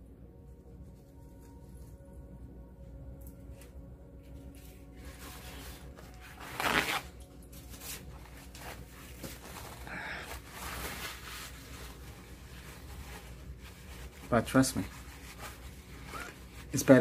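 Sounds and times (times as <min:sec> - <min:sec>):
paper tissue rustling: 0:03.4 - 0:17.0.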